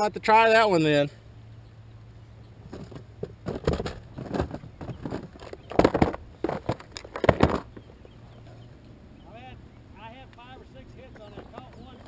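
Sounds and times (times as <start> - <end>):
handling clatter knocks and clicks: 2.7 - 8.2.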